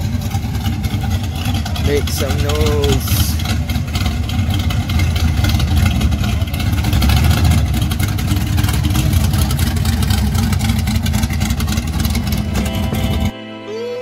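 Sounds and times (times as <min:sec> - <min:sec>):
car engine running deep: 0:00.0 - 0:13.3.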